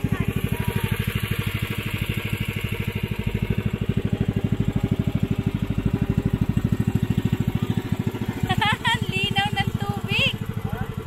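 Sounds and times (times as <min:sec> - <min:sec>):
motor boat engine running: 0:00.0 - 0:11.0.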